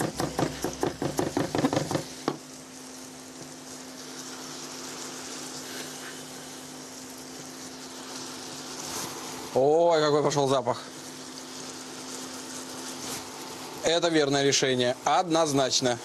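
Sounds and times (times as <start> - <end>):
knife chopping on wooden board: 0.0 - 2.4
mushrooms sizzling in a pan: 0.0 - 16.0.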